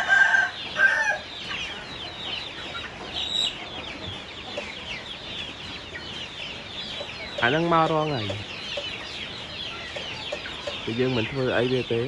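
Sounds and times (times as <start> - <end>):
rooster crowing: 0.0 - 1.3
chicks peeping and clucking: 0.0 - 12.0.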